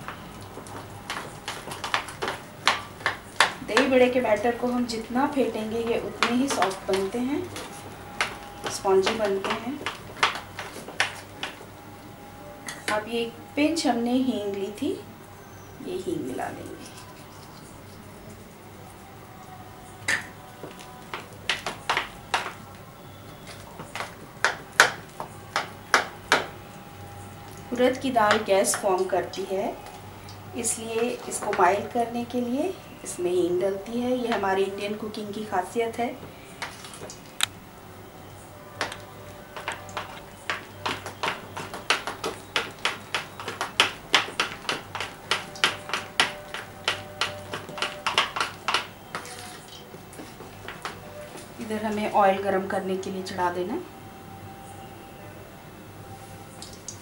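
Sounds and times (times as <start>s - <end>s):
batter beaten by hand in a bowl: 5.7s - 11.6s, 23.5s - 26.5s, 38.8s - 51.0s
hand slapping batter in bowl: 39.6s - 49.7s.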